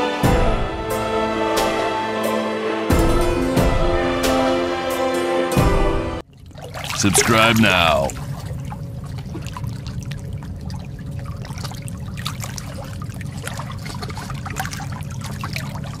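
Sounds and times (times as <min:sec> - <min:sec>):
water trickling and splashing: 0:06.2 - 0:16.0.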